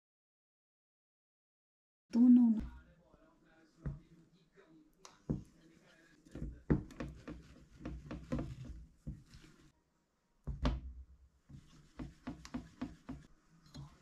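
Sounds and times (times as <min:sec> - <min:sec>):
spatula stirring in a saucepan: 0:05.1 - 0:09.8, 0:11.4 - 0:14.0.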